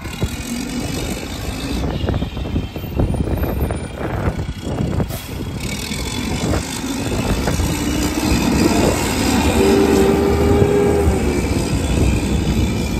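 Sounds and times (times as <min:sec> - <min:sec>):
garbage truck engine running: 0:04.0 - 0:12.9.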